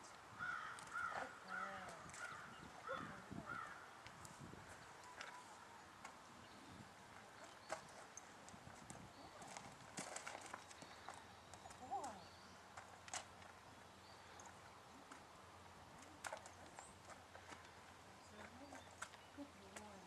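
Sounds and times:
faint bird calls: 0.4s - 4.0s
horse hooves on soft dirt: 4.1s - 20.0s.

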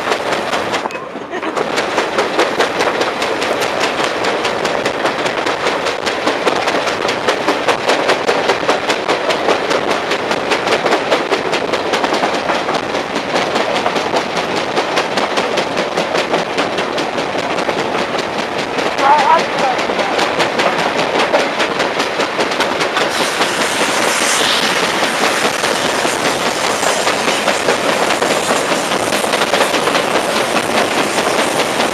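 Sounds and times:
wheel flat spot hammering rail: 0.0s - 31.9s
wheels rushing on track: 0.0s - 31.9s.

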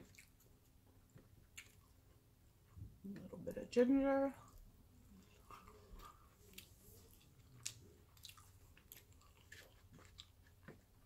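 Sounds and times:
chewing with soft crunches: 0.0s - 2.8s, 4.4s - 11.0s.

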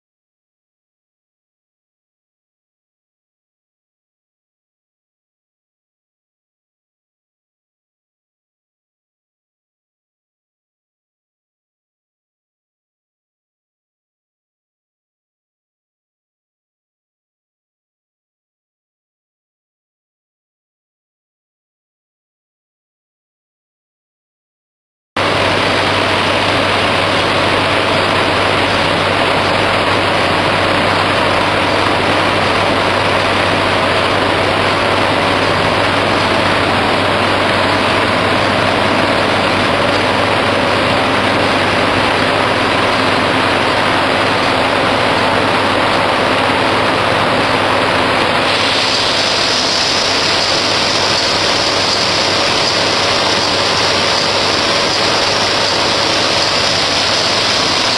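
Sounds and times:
paper sheeter machine running: 25.2s - 57.9s.

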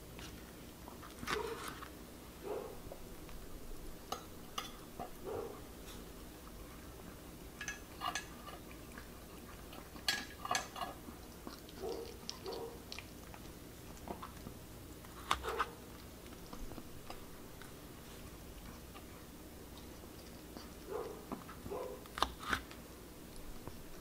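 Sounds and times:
metal fork clinking against bowl: 4.1s - 4.8s, 7.6s - 8.3s
dog chewing and licking: 4.8s - 24.0s.

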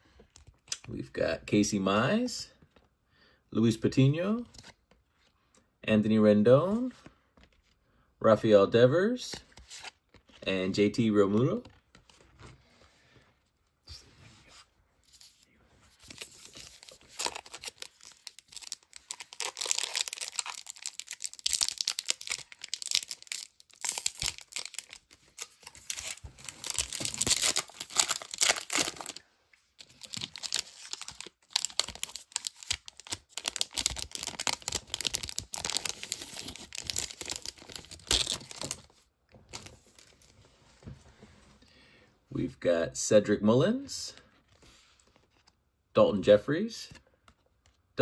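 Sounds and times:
wrapper crinkling and tearing: 16.0s - 29.2s, 29.8s - 40.3s.

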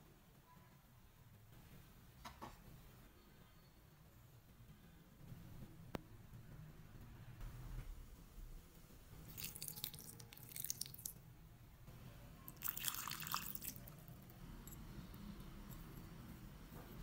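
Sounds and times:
liquid pouring onto meat: 9.2s - 11.2s, 12.6s - 14.0s.

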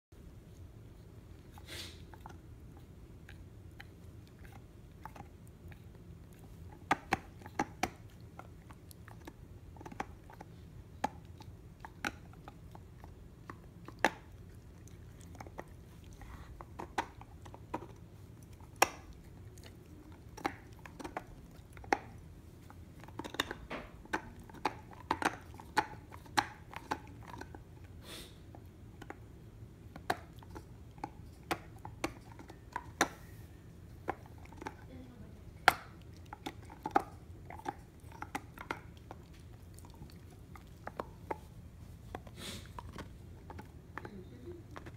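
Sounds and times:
dog gnawing hard chew: 0.5s - 44.9s.

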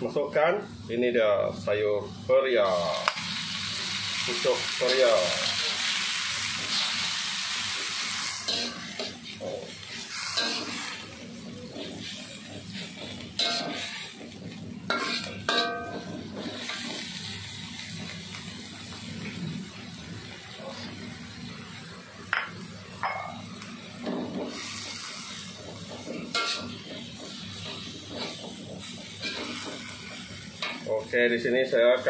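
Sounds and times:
vegetables sizzling in hot oil: 0.0s - 32.0s
metal spatula scraping a wok: 4.8s - 17.2s, 24.2s - 30.9s.

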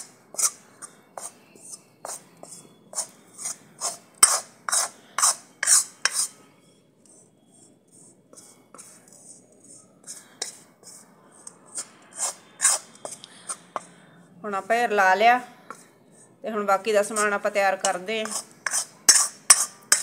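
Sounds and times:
metal ladle scraping in iron pan: 0.0s - 6.4s, 7.9s - 13.9s, 17.0s - 20.0s.

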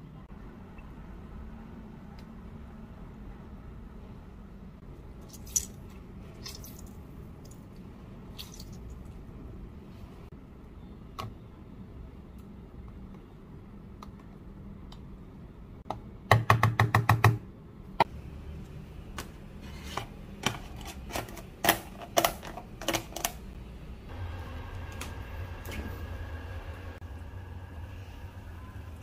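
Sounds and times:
low hum: 23.5s - 29.0s.

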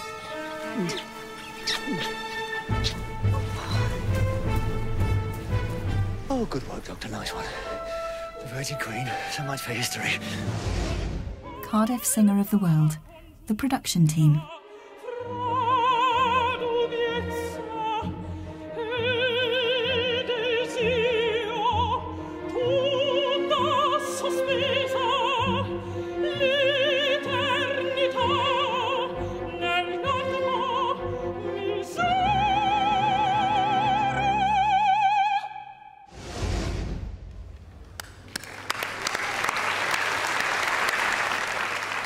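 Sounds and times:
symphony orchestra: 0.0s - 12.0s
woman singing opera: 14.2s - 35.8s.

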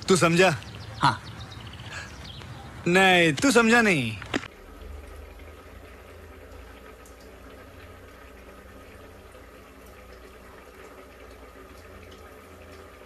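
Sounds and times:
noodles boiling in a pot: 4.5s - 13.0s.

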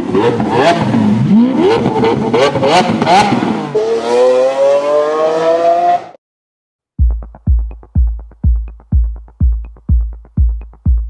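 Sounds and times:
car engine revving: 0.0s - 6.2s
electronic music with bass drum: 7.0s - 11.0s.

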